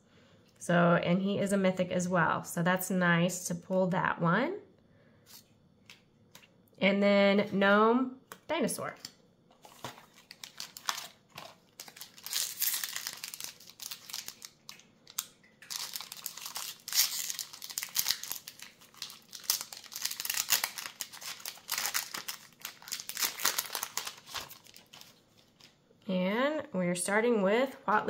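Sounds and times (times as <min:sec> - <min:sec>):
foil wrapper tearing and crinkling: 0:09.6 - 0:25.7.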